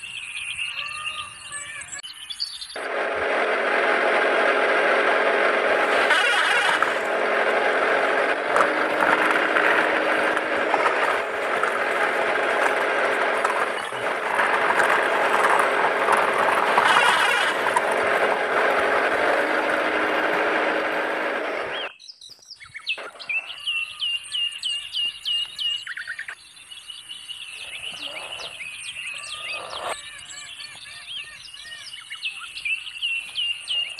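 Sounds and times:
toy truck rattling over dirt: 2.9s - 21.9s.

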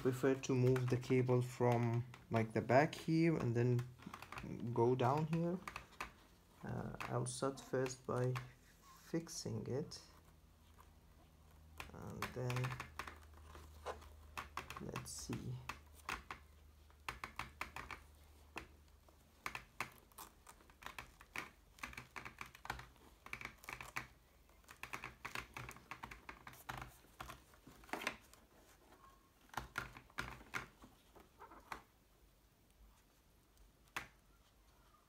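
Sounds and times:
hands clicking and tapping: 11.6s - 28.4s.

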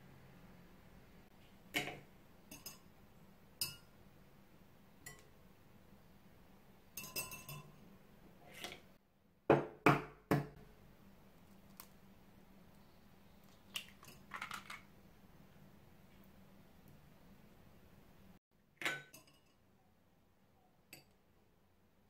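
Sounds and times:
metal clinking on glass: 2.5s - 2.9s, 3.6s - 3.9s, 7.0s - 7.8s.

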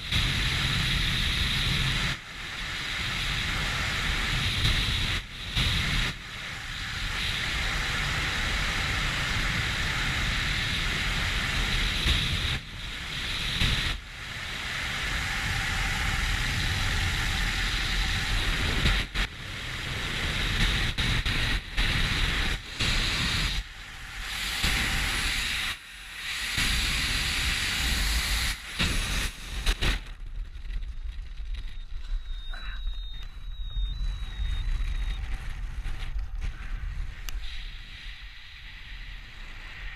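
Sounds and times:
wind rushing over microphone: 0.0s - 39.9s
short high beeps: 31.8s - 35.2s.

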